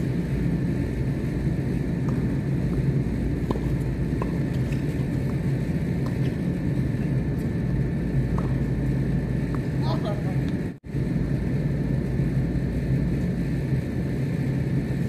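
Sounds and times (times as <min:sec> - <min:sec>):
low outdoor rumble: 0:00.0 - 0:15.0
thin constant hum: 0:00.0 - 0:15.0
tennis rackets striking ball: 0:02.0 - 0:06.5, 0:08.3 - 0:08.7
ball bouncing on hard court: 0:02.0 - 0:07.2, 0:08.3 - 0:08.8.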